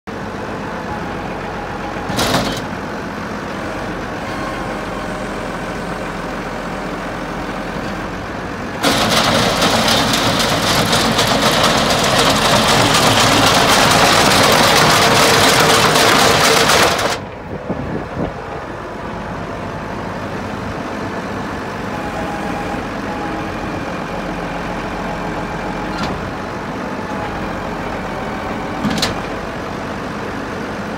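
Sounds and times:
tractor engine running: 0.1s - 30.9s
harsh clattering rush: 8.8s - 17.3s.

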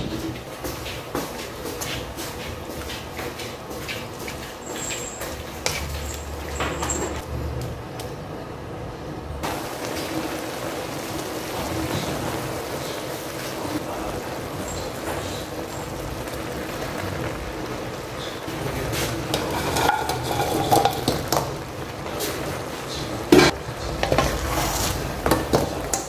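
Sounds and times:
noodles sizzling in a wok: 9.4s - 26.0s
ingredients clattering into pan: 9.8s - 26.0s.

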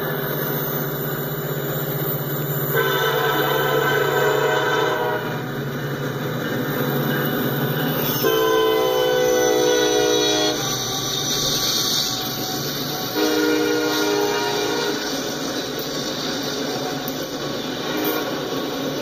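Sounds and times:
rumble of passing train: 0.0s - 19.0s
locomotive horn blasts: 2.7s - 5.4s, 8.1s - 15.1s, 17.8s - 18.4s.

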